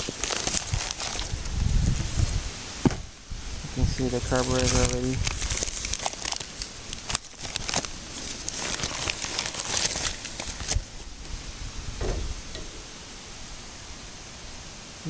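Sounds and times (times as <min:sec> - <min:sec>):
packing paper rustling and crinkling: 0:00.0 - 0:02.4, 0:03.9 - 0:11.1.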